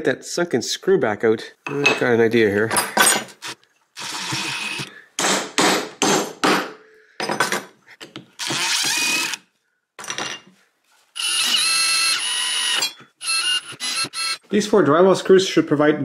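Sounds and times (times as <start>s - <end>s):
cordless drill whining: 3.4s - 4.9s, 8.4s - 9.4s, 11.2s - 14.5s.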